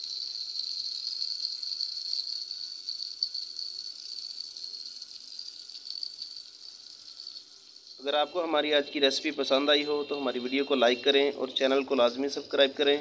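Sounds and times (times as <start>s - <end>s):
meat sizzling in oil: 0.0s - 8.1s.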